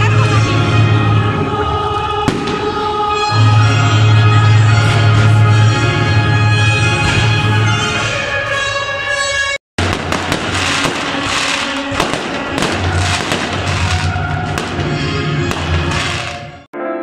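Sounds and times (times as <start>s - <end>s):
music playing: 0.0s - 17.0s
fireworks bursting and crackling: 2.3s - 3.2s, 9.8s - 16.7s.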